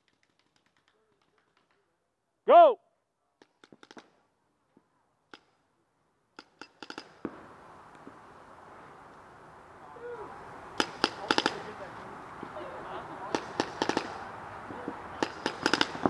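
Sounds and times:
steady hiss: 6.4 - 16.0.

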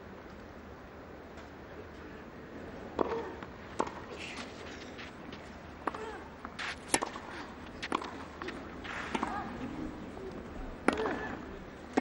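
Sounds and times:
low crowd background: 0.0 - 12.0
tennis racket hitting ball: 5.8 - 9.5, 10.8 - 12.0.

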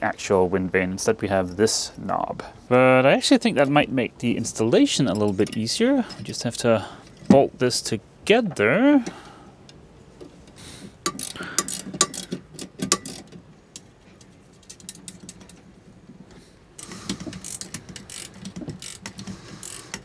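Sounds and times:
metal parts clinking: 11.0 - 13.4
ratcheting wrench clicking: 11.0 - 13.4, 16.8 - 20.0.

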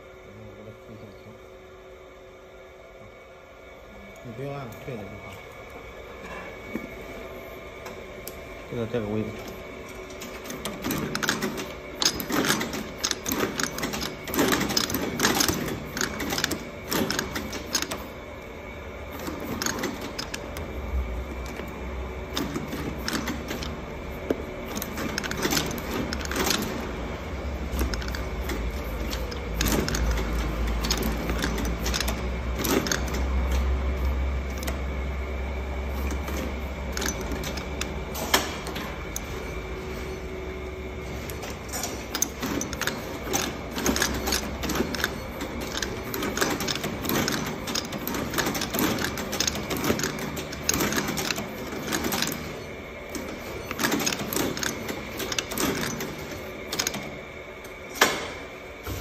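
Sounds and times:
stitching machine clacks: 10.1 - 18.1, 19.2 - 20.7, 22.3 - 23.8, 24.7 - 27.0, 27.6 - 33.8, 36.0 - 39.3, 41.4 - 57.1.

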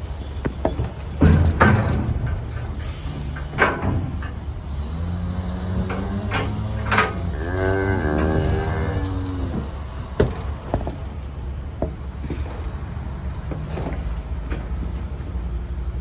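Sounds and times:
steady low hum: 0.0 - 16.0
metal knocks and clangs: 0.5 - 4.4, 5.8 - 8.5.

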